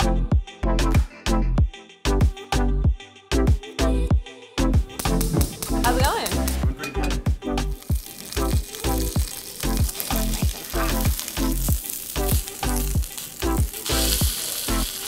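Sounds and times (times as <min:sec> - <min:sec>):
background music with steady beat: 0:00.0 - 0:15.0
chicken sizzling in a frying pan: 0:07.7 - 0:15.0.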